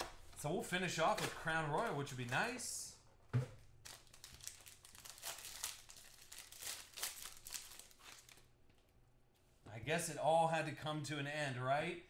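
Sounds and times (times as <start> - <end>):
foil wrapper tearing and crinkling: 3.8 - 8.5.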